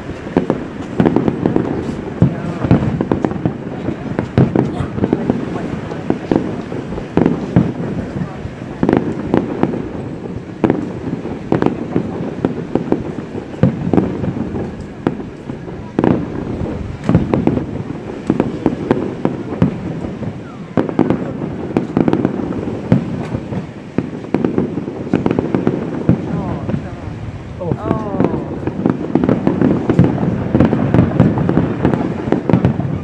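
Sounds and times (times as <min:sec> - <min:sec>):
fireworks bursting: 0:00.0 - 0:33.0
loud firework booms: 0:00.0 - 0:33.0.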